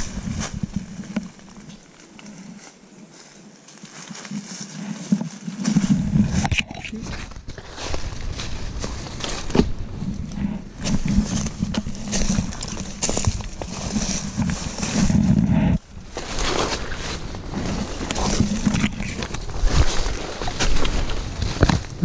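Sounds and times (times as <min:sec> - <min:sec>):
fronds rustling and scraping: 0:00.0 - 0:22.0
camera handling rumble: 0:05.1 - 0:22.0.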